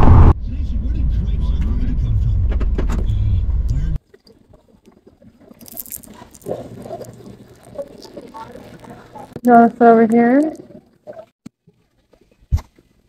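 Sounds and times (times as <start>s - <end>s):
low rumble inside car: 0.4s - 4.0s.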